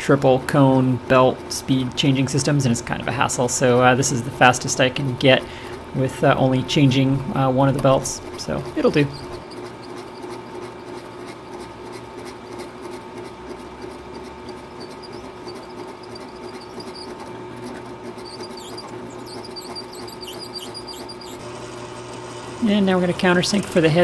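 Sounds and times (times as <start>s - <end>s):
drill press motor hum: 0.1s - 24.0s
drill scratching through metal: 7.8s - 21.7s.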